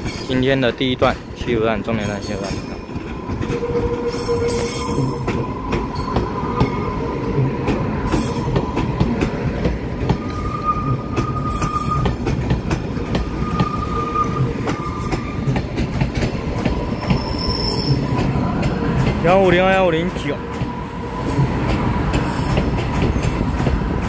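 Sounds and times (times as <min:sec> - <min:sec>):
wheels clicking over rail joints: 0:00.0 - 0:10.3, 0:10.9 - 0:13.7, 0:14.4 - 0:24.0
train rumble: 0:00.0 - 0:24.0
high wheel squeal: 0:03.5 - 0:07.0, 0:10.2 - 0:12.4, 0:13.2 - 0:15.6, 0:16.7 - 0:18.2.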